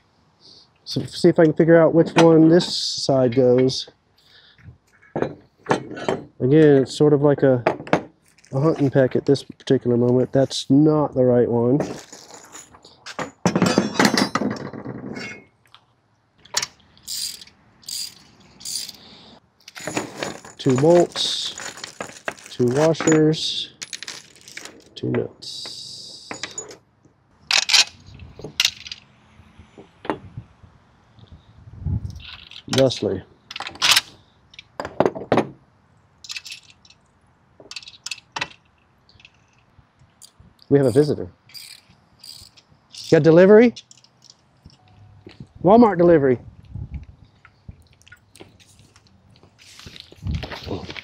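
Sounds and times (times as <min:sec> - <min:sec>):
metal bolts and nuts clinking: 0:02.0 - 0:03.9, 0:11.8 - 0:15.6, 0:16.4 - 0:26.8, 0:27.5 - 0:29.0, 0:32.2 - 0:35.3, 0:36.2 - 0:37.0, 0:37.6 - 0:39.7, 0:40.8 - 0:45.0
metal parts clattering: 0:11.8 - 0:15.5, 0:16.5 - 0:25.0, 0:25.6 - 0:26.8, 0:27.5 - 0:29.0, 0:32.2 - 0:34.2, 0:36.2 - 0:37.0, 0:37.7 - 0:39.7, 0:40.8 - 0:44.4
high rasping clicks: 0:15.6 - 0:19.8, 0:37.7 - 0:45.0.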